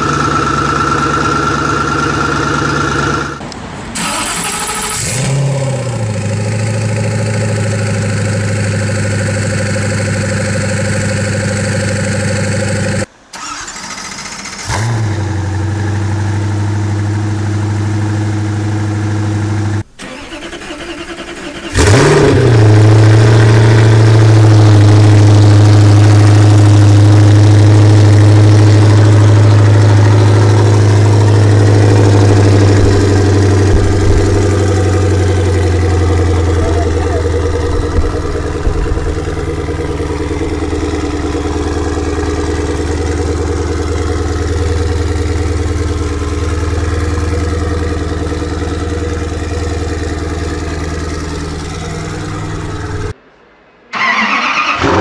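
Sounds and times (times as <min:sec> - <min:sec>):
car engine idling: 0:00.0 - 0:53.2
car engine starting with a flare: 0:00.0 - 0:53.2, 0:53.9 - 0:55.0.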